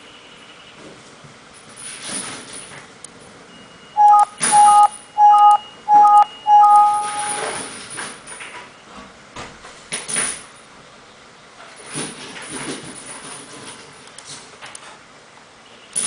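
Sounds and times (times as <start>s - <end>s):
electronic beeps: 3.9s - 7.6s.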